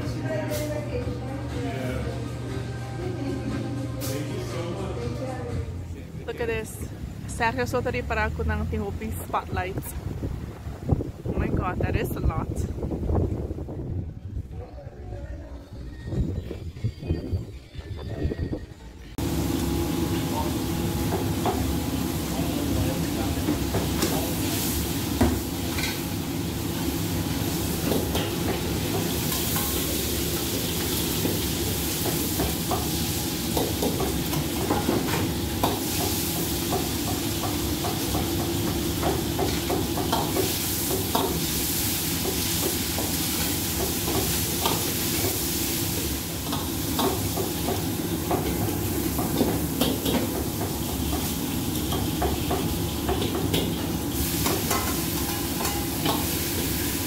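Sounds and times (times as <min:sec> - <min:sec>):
low rumble of gas burner: 0:18.6 - 0:57.0
food sizzling in a wok: 0:19.2 - 0:57.0.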